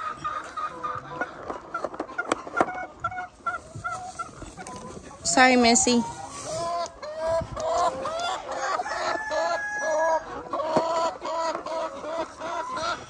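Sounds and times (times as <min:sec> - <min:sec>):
hen clucking: 0:00.0 - 0:13.0.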